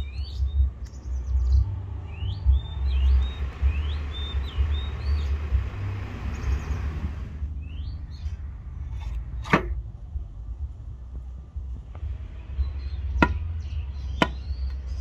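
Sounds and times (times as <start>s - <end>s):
small birds chirping: 0.0s - 8.6s, 12.0s - 15.0s
low rumble: 0.0s - 15.0s.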